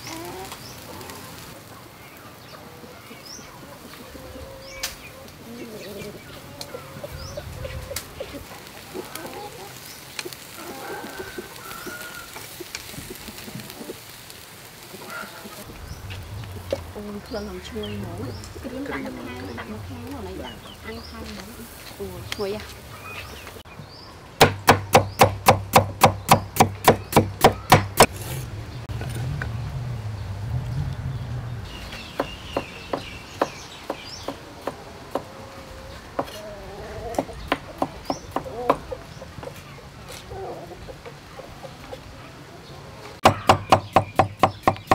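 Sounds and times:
meat sizzling on a grill: 0.0s - 2.5s, 3.2s - 22.9s
birds calling: 0.0s - 28.9s, 30.1s - 44.9s
cleaver chopping on wooden board: 24.4s - 28.4s, 43.2s - 44.9s.

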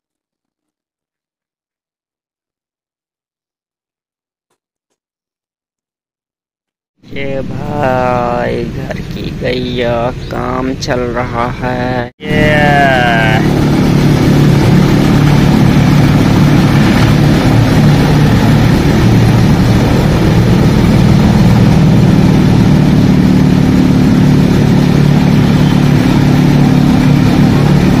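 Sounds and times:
threshing machine running: 12.2s - 28.0s.

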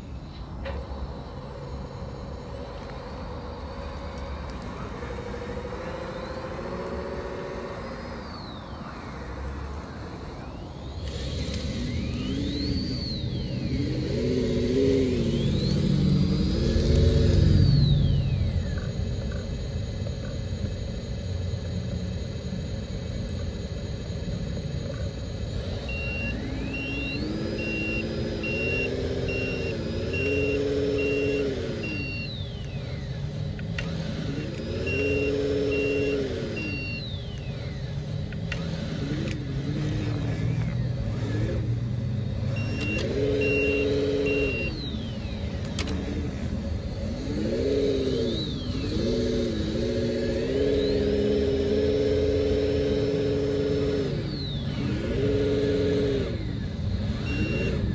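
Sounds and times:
electronic diesel engine revving: 0.0s - 57.9s
reversing beeps: 5.8s - 19.1s, 25.5s - 38.9s, 42.3s - 46.1s, 47.4s - 57.9s.

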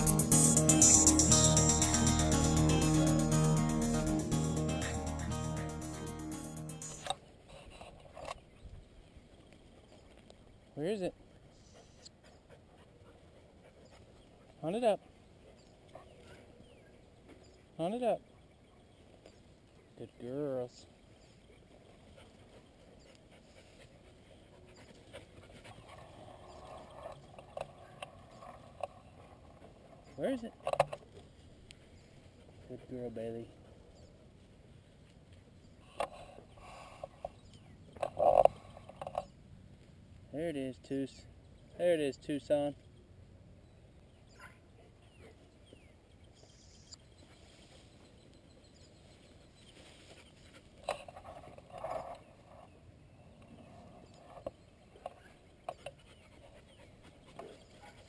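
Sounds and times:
dogs panting: 0.0s - 7.1s, 11.3s - 18.9s, 21.2s - 34.6s, 47.2s - 58.0s
faint bird chirps: 42.6s - 50.6s.

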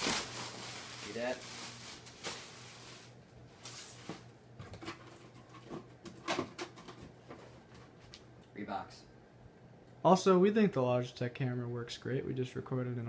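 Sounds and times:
plastic bag rustling: 0.0s - 4.3s.

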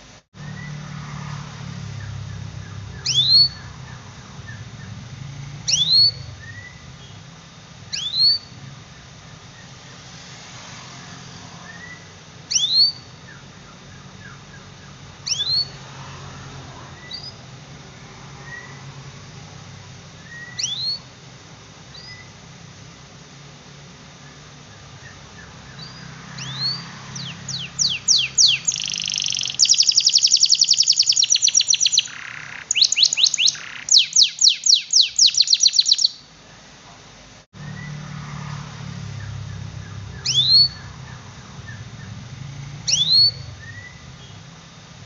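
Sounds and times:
low steady hum: 0.0s - 28.8s
canary high call: 2.9s - 4.6s, 25.8s - 36.3s, 40.1s - 41.8s.

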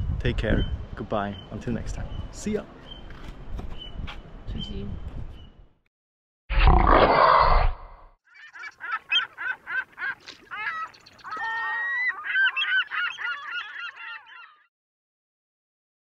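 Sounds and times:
bird calls: 8.3s - 14.7s.

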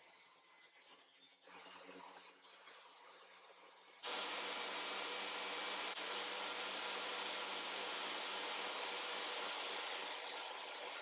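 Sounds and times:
shop vacuum running: 4.0s - 10.8s
table saw running: 4.0s - 11.0s.

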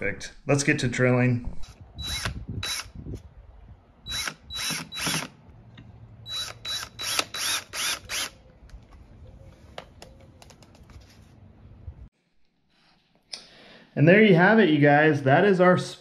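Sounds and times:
cordless drill driving screws: 2.0s - 2.9s, 4.1s - 5.3s, 6.3s - 8.4s.

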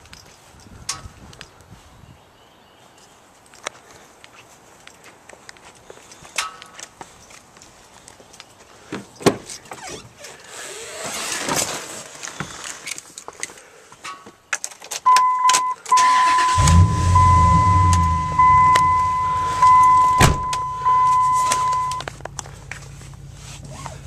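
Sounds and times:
electronic warning chime: 15.1s - 22.1s
engine cranking and idling: 16.0s - 23.7s
car door click: 17.8s - 22.0s.

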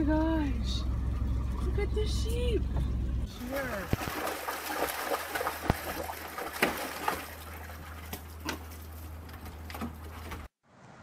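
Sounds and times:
dog splashing in pool water: 3.4s - 9.2s.

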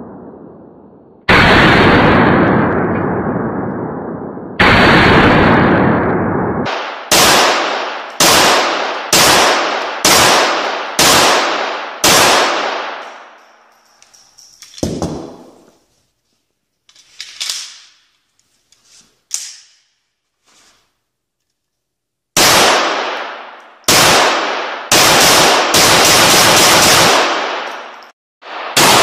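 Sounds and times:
pistol shots echoing indoors: 0.0s - 15.8s, 17.4s - 18.1s, 22.3s - 29.0s
metallic clacks of pistol handling: 13.0s - 15.2s, 16.8s - 19.9s.

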